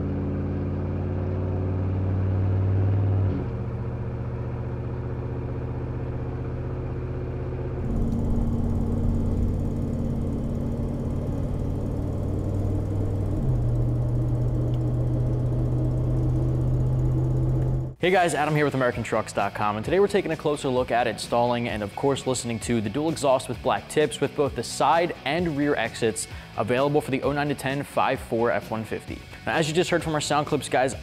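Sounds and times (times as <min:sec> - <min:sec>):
truck engine through exhaust: 0:00.0 - 0:18.0.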